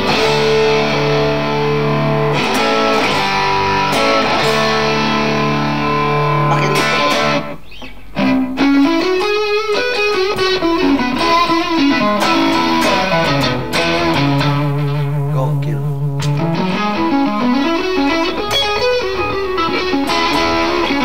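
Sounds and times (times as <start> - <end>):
overdriven electric guitar: 0.0 - 21.0.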